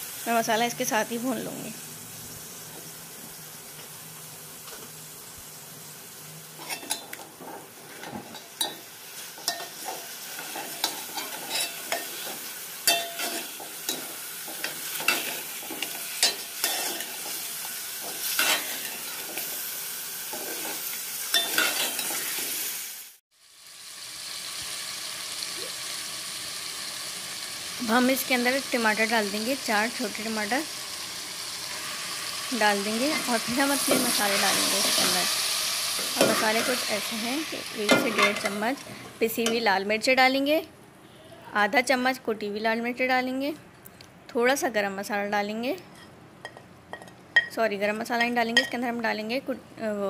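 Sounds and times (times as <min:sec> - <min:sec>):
chicken sizzling in oil: 0:00.0 - 0:39.4.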